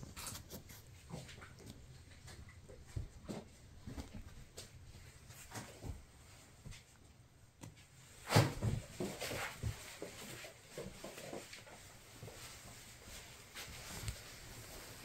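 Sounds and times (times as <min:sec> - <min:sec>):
kittens scuffling on bedding: 0:00.0 - 0:15.0.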